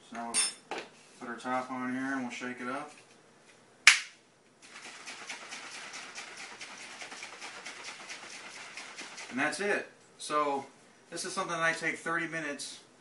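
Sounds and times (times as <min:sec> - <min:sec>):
liquid sloshing in shaker bottle: 0:04.6 - 0:09.6.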